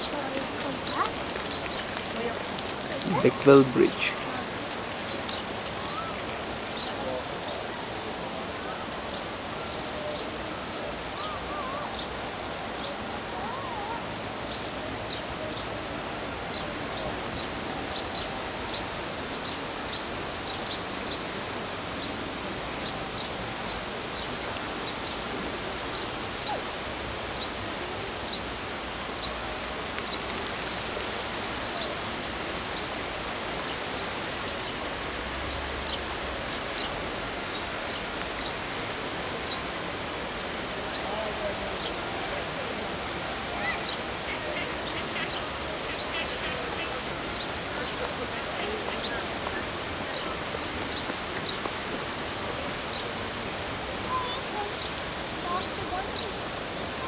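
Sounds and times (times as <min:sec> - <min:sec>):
birds chirping: 0:00.0 - 0:21.3, 0:43.5 - 0:57.0
river hiss: 0:00.0 - 0:57.0.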